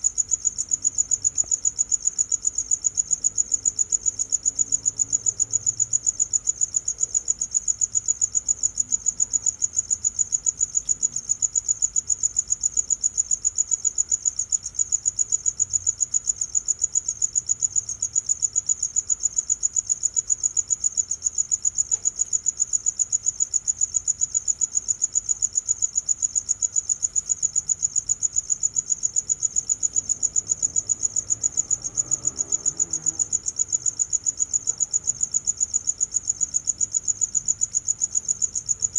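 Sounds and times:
cricket chirping: 0:00.0 - 0:38.9.

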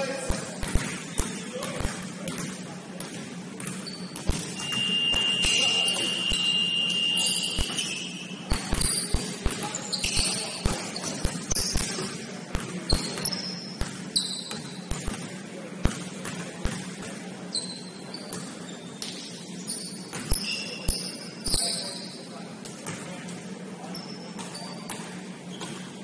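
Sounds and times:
sneakers squeaking: 0:00.0 - 0:26.0
basketball bouncing on floor: 0:00.3 - 0:04.8, 0:12.5 - 0:17.2
steady high tone: 0:04.6 - 0:08.5.

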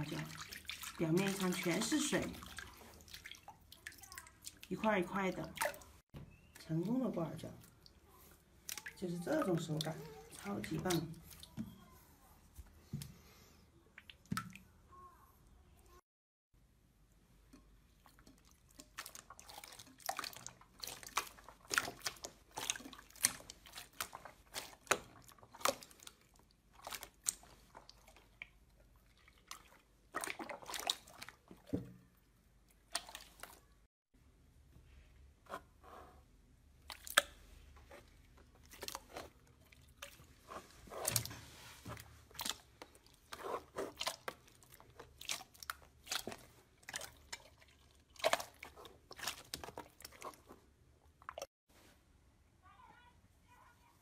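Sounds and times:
slime squelching and popping: 0:18.0 - 0:32.0, 0:36.8 - 0:50.6.

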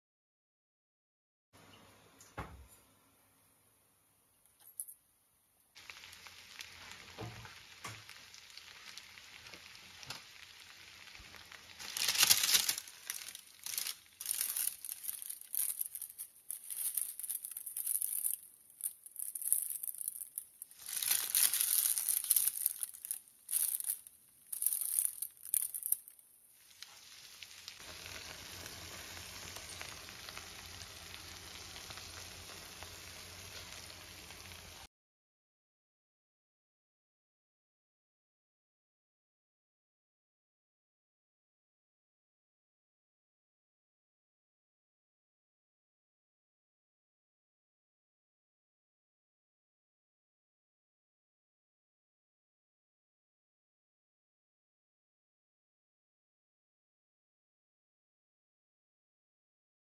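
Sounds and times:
faint steady hiss: 0:01.6 - 0:34.9
parchment paper crinkling: 0:11.8 - 0:27.8.

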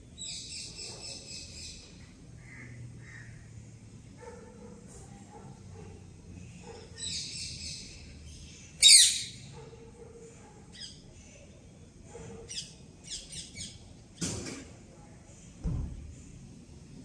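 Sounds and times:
songbird calls: 0:07.0 - 0:09.4.

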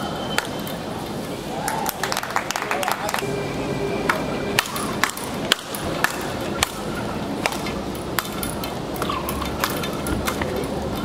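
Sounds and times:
rackets striking ball: 0:04.1 - 0:10.6.

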